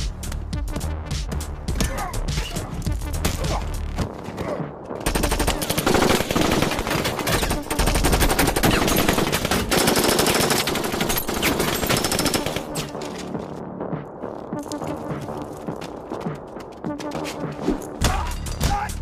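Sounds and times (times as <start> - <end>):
automatic gunfire: 5.1 - 12.7.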